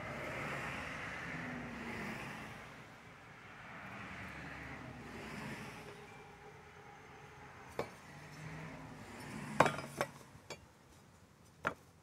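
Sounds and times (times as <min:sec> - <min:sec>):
metal tools clinking on wood: 0:09.2 - 0:10.7.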